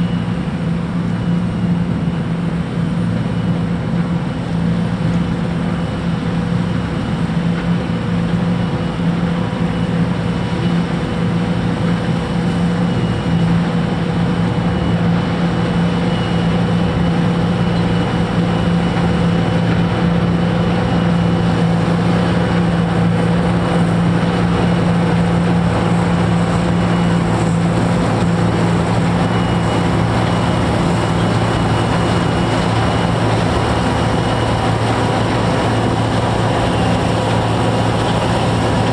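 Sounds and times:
combine harvester drone: 0.0 - 38.9
high whine: 7.8 - 38.9.

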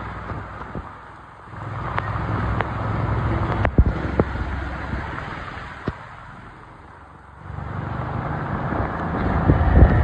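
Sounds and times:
heavy rain pouring: 0.0 - 10.0
traffic driving through water: 0.0 - 10.0.

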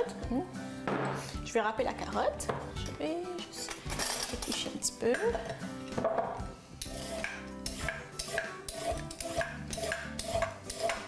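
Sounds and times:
peeler scraping carrot: 6.8 - 11.0.

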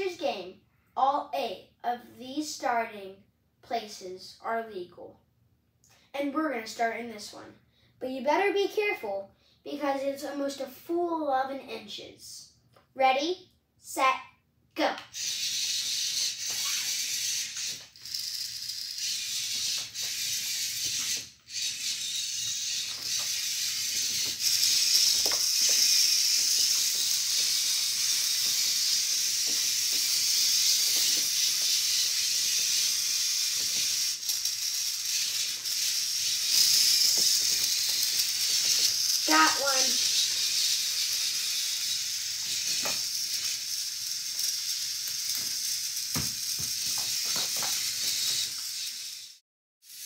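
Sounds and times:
robot motors whining: 15.1 - 50.0.

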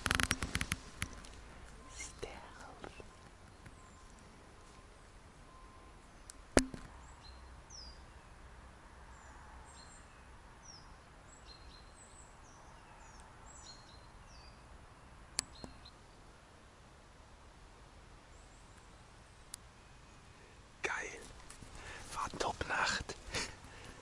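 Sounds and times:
small birds chirping: 0.0 - 8.5, 9.1 - 16.4, 18.2 - 24.0
faint outdoor hiss: 0.0 - 24.0.

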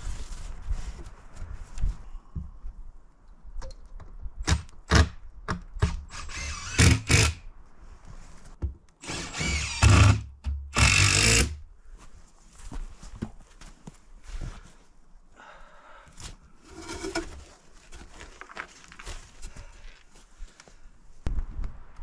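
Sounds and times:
cordless drill driving screws: 6.1 - 7.4, 9.0 - 10.2.

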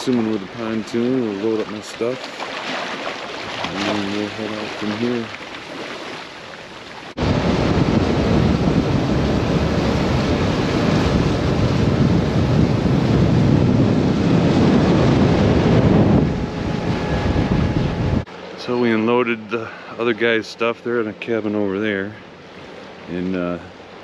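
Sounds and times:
outboard motor: 0.0 - 24.0
water rushing past boat: 0.0 - 24.0
wind buffeting microphone: 7.2 - 18.3.

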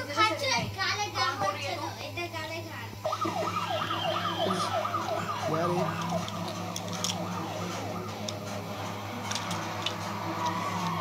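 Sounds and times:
siren in falling sweeps: 3.0 - 11.0
plastic blocks clicking: 5.9 - 7.3, 9.2 - 11.0.

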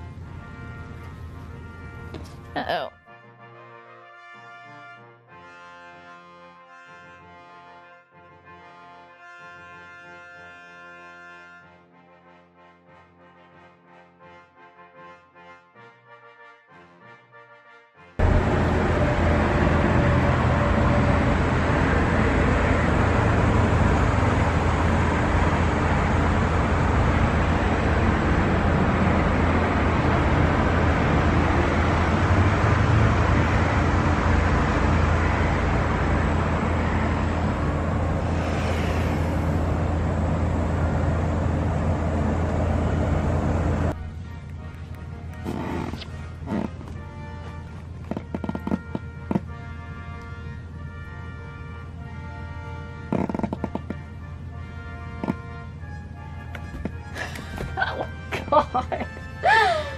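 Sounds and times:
loud rushing noise with hum: 18.2 - 44.0.

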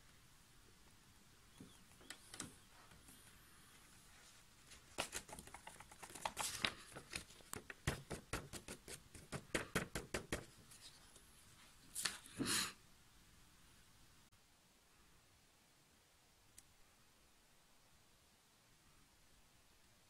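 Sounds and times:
paper rustling: 1.7 - 12.4.

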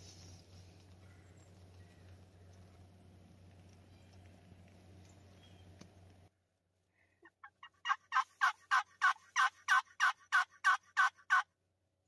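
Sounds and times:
wild turkey yelping: 7.2 - 11.5.

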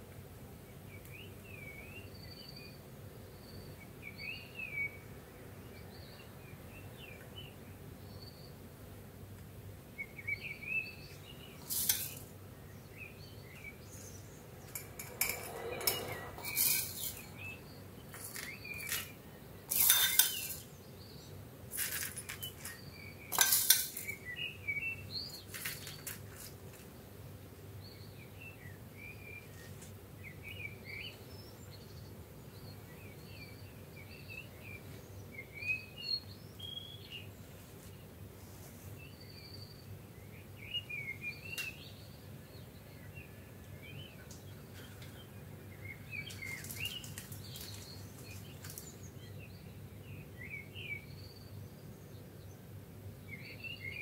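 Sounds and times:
birds chirping: 9.6 - 38.2, 39.0 - 54.0
puffed rice clinking on glass: 11.6 - 12.3, 14.7 - 17.3, 18.1 - 20.7, 21.7 - 24.2, 25.4 - 26.8, 46.2 - 48.9.

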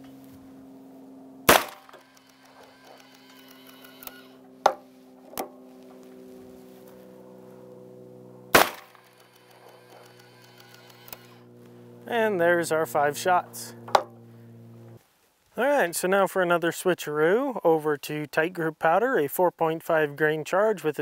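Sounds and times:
revolver gunshots: 1.4 - 3.0, 8.5 - 10.1.

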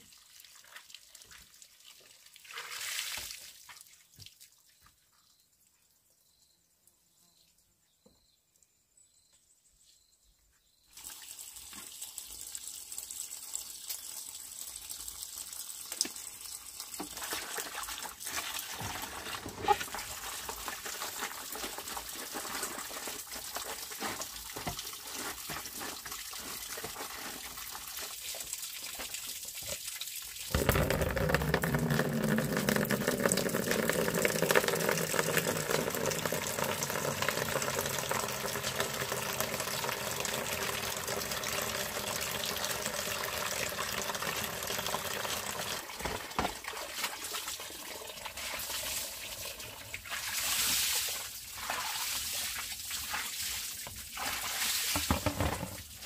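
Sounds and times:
water pouring from spout: 0.0 - 3.8, 11.0 - 56.0
water splashing into basin: 27.6 - 55.9.

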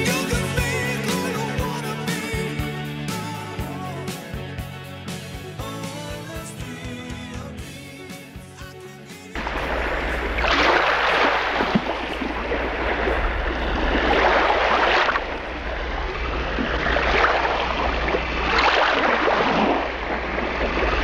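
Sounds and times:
waves breaking: 9.4 - 21.0.

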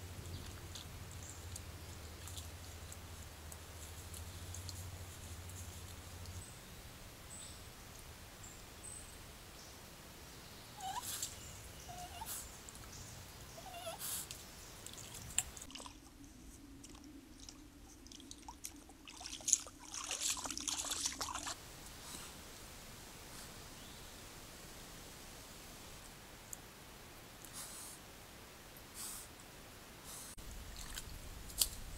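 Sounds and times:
splashing and clicking in water: 0.3 - 6.4, 14.3 - 16.1, 16.8 - 21.6, 30.7 - 31.8.

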